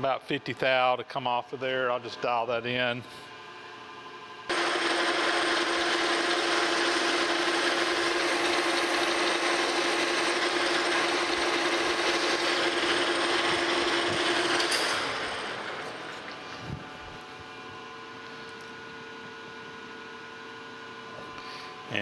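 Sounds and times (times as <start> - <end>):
spindle winding down: 4.5 - 16.4
metal lathe running: 4.5 - 16.5.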